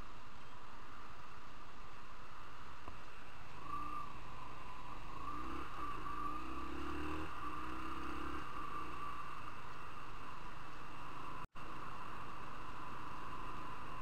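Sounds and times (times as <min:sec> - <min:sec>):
motorcycle engine accelerating: 0:03.6 - 0:10.4.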